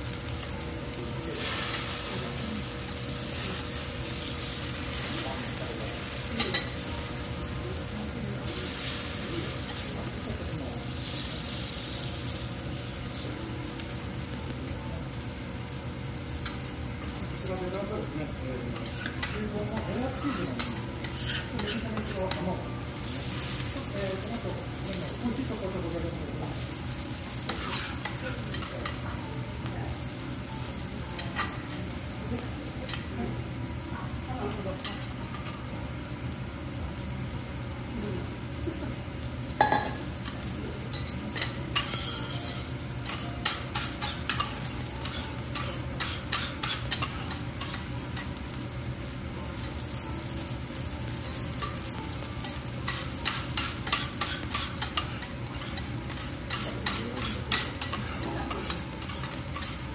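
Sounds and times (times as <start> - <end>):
food sizzling on a griddle: 0.0 - 59.9
spatulas tapping and scraping: 18.8 - 22.5, 39.7 - 48.3, 52.4 - 59.9.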